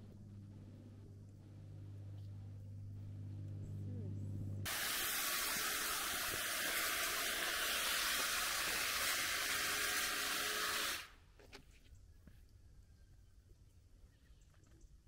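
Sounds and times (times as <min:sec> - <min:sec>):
loud steady hiss: 0:04.7 - 0:11.2.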